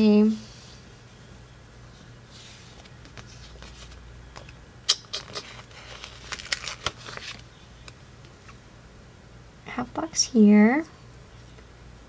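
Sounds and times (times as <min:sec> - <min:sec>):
paper clicks and crackles: 0:05.2 - 0:08.0.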